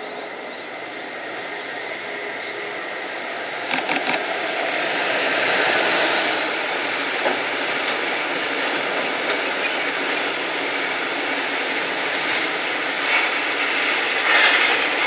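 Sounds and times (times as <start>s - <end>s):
train wheels rolling on rails: 0.0s - 15.0s
sharp clack of train wheels: 3.5s - 15.0s.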